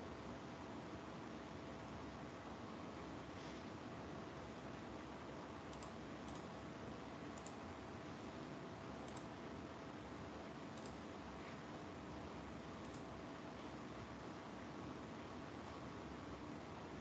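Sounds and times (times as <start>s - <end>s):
microphone hiss: 0.0s - 17.0s
faint clicks: 5.7s - 6.5s, 7.3s - 7.6s, 9.0s - 9.3s, 10.7s - 11.0s, 12.8s - 13.1s.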